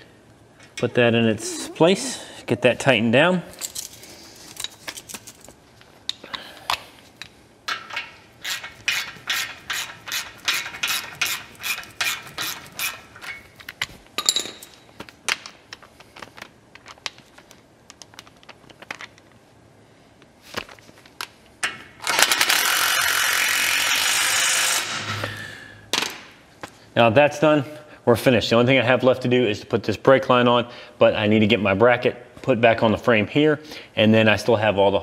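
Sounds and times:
ratchet clicking: 0:07.8 - 0:13.4.

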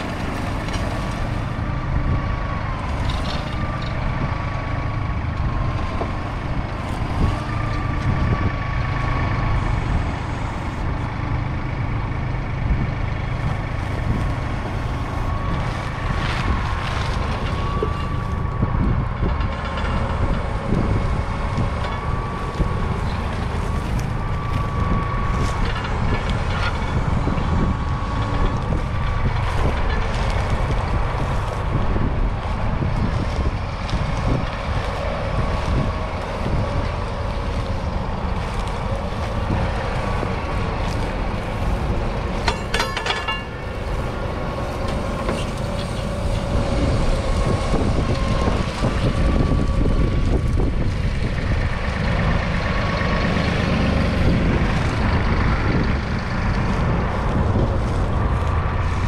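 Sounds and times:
tractor diesel engine under load: 0:00.0 - 0:59.0
rattle of metallic clicks: 0:42.4 - 0:43.6.

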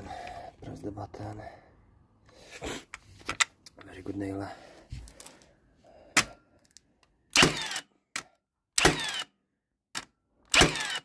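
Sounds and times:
nail gun click: 0:07.3 - 0:09.3, 0:09.9 - 0:11.0
nail gun shots with whir: 0:07.3 - 0:09.3, 0:09.9 - 0:11.0.

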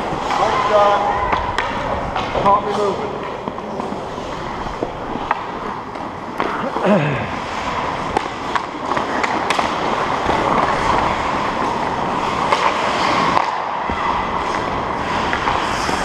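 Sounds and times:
hockey sticks and puck clacking: 0:00.0 - 0:16.0
skate blades scraping ice: 0:00.0 - 0:16.0.

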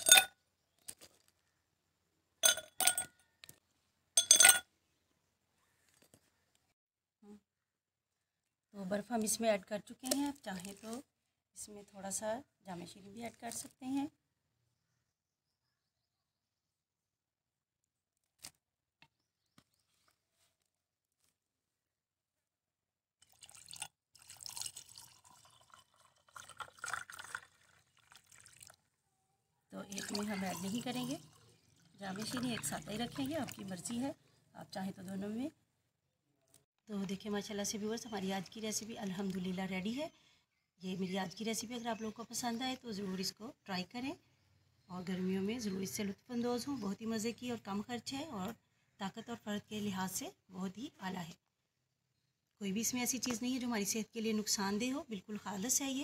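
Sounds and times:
ice cubes clinking in glass: 0:00.0 - 0:00.3, 0:02.4 - 0:03.2, 0:04.2 - 0:04.6
liquid pouring into glass over ice: 0:23.2 - 0:28.8, 0:29.9 - 0:33.7.

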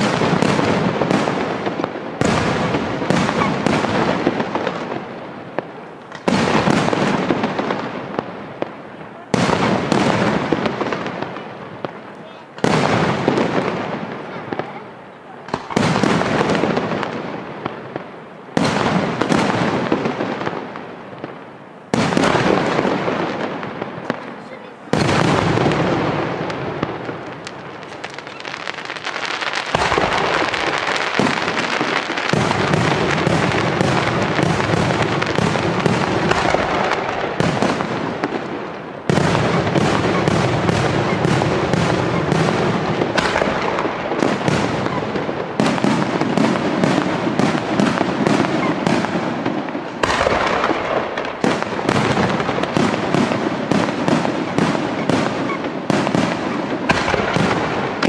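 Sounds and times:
firework shells bursting: 0:24.9 - 0:58.0.

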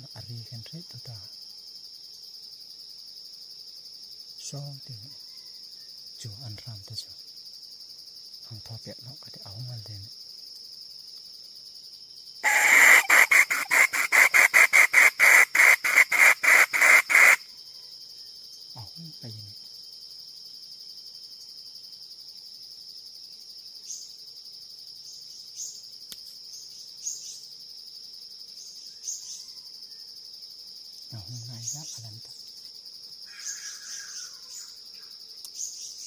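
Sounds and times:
high insect drone: 0:00.0 - 0:36.0
jungle fowl cackling call: 0:12.4 - 0:17.5, 0:33.3 - 0:34.8.

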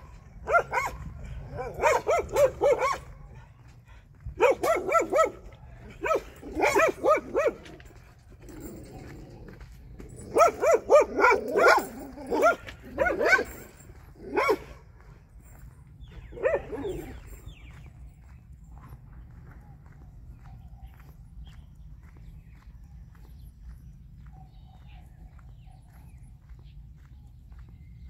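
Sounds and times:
dog barking: 0:00.0 - 0:03.5, 0:04.4 - 0:07.8, 0:10.2 - 0:14.8, 0:16.3 - 0:17.1.

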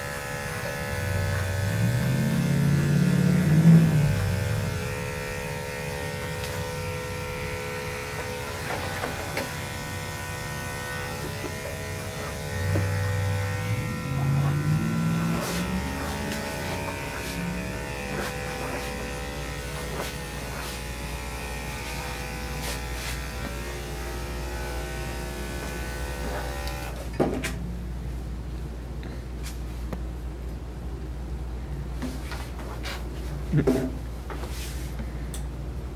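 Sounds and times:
electric clippers humming: 0:00.0 - 0:27.2.

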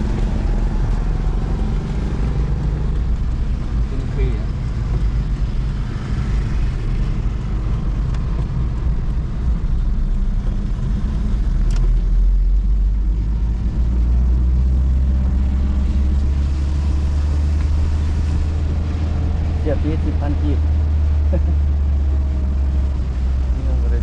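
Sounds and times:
car engine and tyre rumble: 0:00.0 - 0:24.0
small click: 0:11.6 - 0:11.9.

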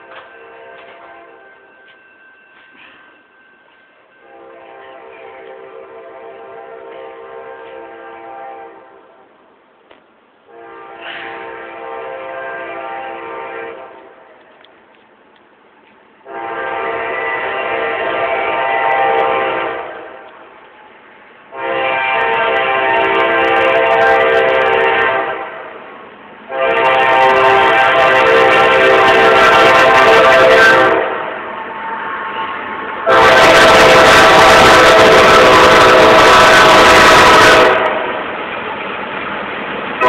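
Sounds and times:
locomotive air horn blasts: 0:00.3 - 0:01.7, 0:04.2 - 0:09.1, 0:10.5 - 0:14.2, 0:16.2 - 0:20.3, 0:21.5 - 0:25.7, 0:26.5 - 0:31.4, 0:33.0 - 0:38.2.

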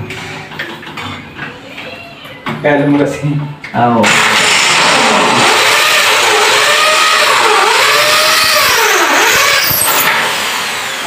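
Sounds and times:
electric drill drilling: 0:04.0 - 0:11.0.

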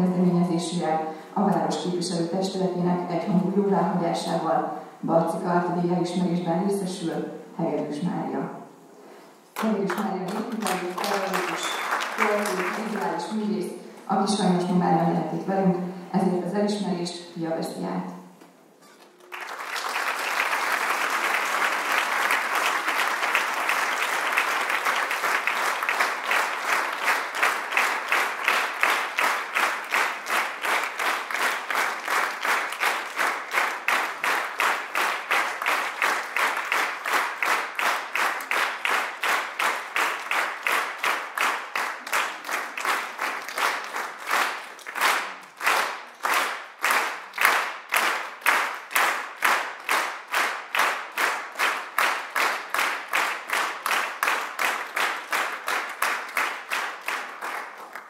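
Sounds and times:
rhythmic unison clapping: 0:09.5 - 0:13.2, 0:19.0 - 0:58.0
audience applauding: 0:09.6 - 0:13.2, 0:19.0 - 0:58.0.

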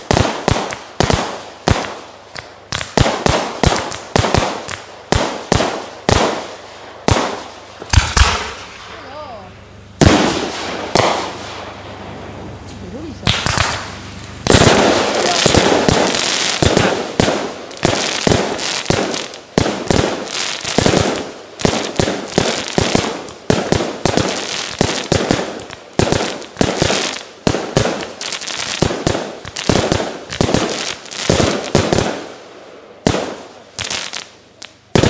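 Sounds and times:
fireworks bangs: 0:00.0 - 0:09.4, 0:10.0 - 0:32.4, 0:33.0 - 0:35.0.

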